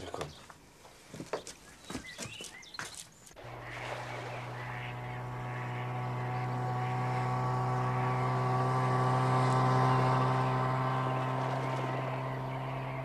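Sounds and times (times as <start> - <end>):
motorboat engine hum: 3.3 - 13.0.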